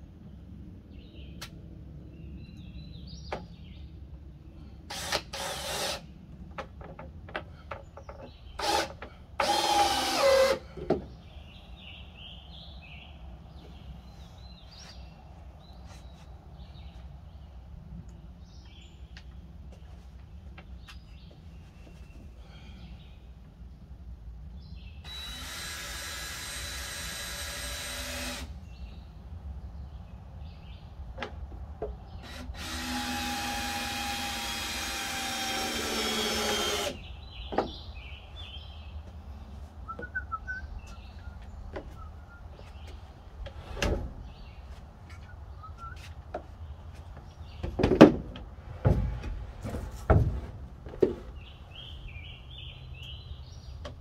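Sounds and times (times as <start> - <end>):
power drill driving screws: 4.9 - 6.0, 8.6 - 10.6, 25.1 - 28.5, 32.3 - 37.0
birds chirping faintly: 27.5 - 50.0, 50.8 - 54.0.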